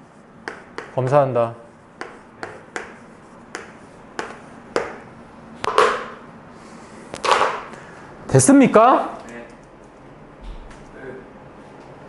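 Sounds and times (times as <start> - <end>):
chalk scratching: 0.0 - 4.9
chalk tapping on chalkboard: 0.4 - 5.0.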